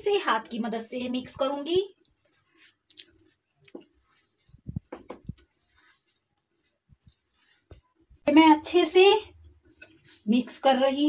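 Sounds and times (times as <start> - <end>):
hand kneading damp mixture: 0.0 - 11.0.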